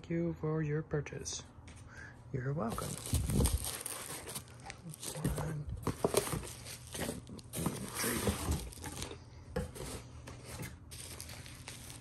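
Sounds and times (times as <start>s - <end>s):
packaging rustling: 2.7s - 12.0s.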